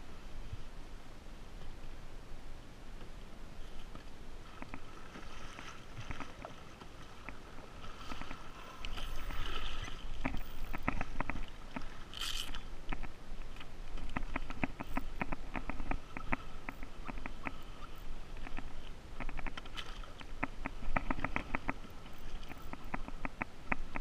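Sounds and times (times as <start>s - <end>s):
water slapping a kayak: 3.0s - 24.0s
fishing gear clicks and knocks: 10.2s - 16.0s.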